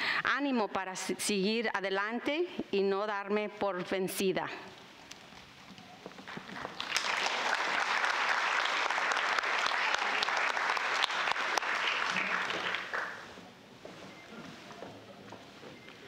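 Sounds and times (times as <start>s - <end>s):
audience applauding: 6.3s - 13.4s.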